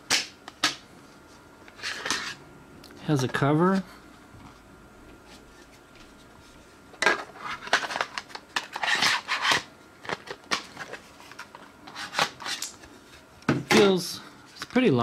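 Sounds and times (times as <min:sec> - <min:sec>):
plastic cover scraping and clicking: 0:07.0 - 0:12.9.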